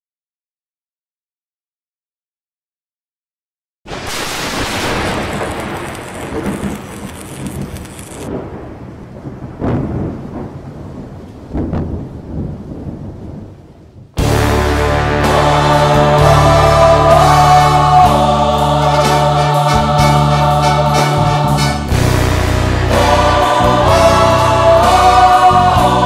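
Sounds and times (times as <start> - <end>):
rain hiss: 3.9 - 10.1
rolling thunder: 3.9 - 14.5
thunder claps: 3.9 - 17.1
music: 14.2 - 26.0.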